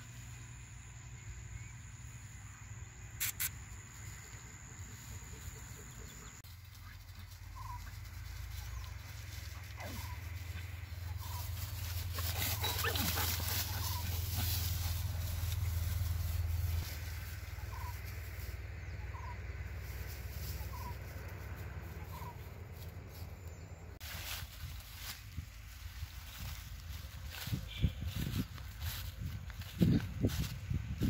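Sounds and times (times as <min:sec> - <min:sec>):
dry straw rustling: 0:06.5 - 0:23.3, 0:24.0 - 0:31.0
wind rumble on microphone: 0:24.6 - 0:31.0.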